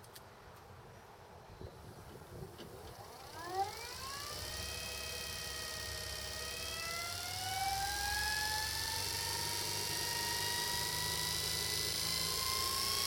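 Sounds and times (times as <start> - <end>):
electric motor whine rising: 2.9 - 13.0.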